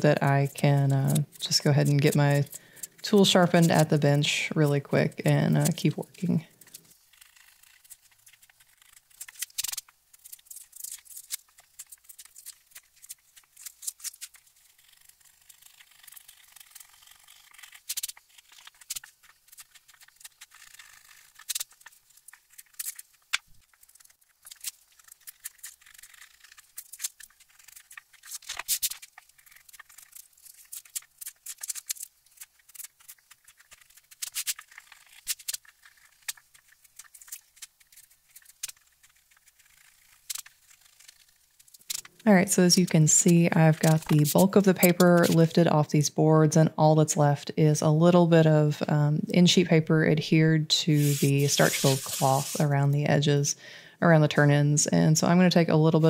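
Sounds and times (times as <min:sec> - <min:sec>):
paper crackle: 0:00.4 - 0:04.0, 0:05.4 - 0:42.3, 0:43.3 - 0:45.6, 0:51.0 - 0:52.7
knife scraping paper: 0:05.4 - 0:42.0, 0:43.8 - 0:45.6, 0:51.0 - 0:52.7.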